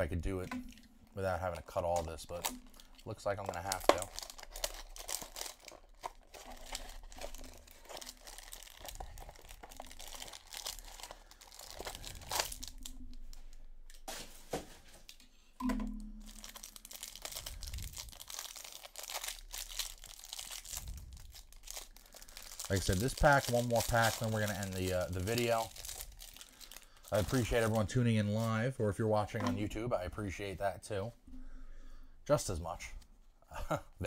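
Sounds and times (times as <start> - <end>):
plastic wrapping crinkling and tearing: 1.2 - 15.2, 16.2 - 28.7.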